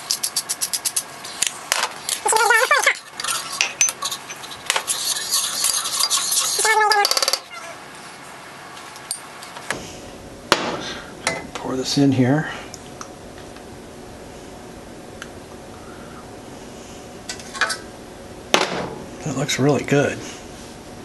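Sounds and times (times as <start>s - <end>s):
pepper grinder clicking and grinding: 0.0s - 1.1s.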